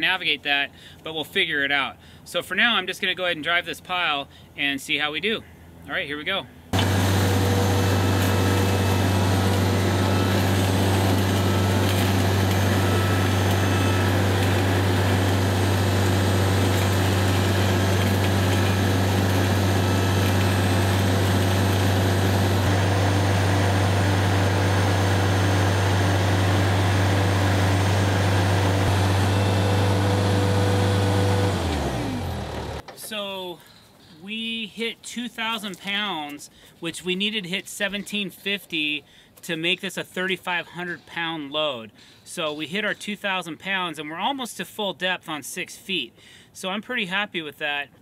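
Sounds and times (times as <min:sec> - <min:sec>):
loader engine running under load: 0:06.8 - 0:32.8.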